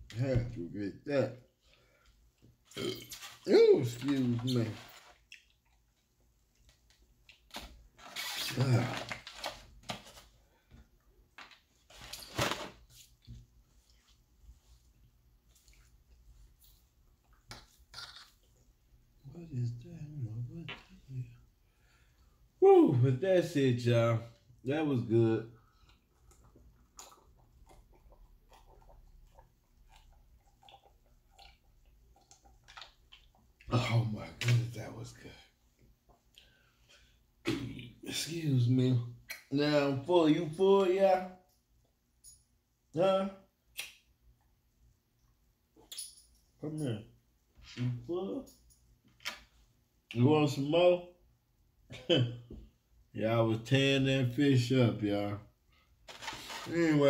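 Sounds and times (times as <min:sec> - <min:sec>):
person swallowing: 0:02.7 - 0:03.2
person burping: 0:02.7 - 0:03.3.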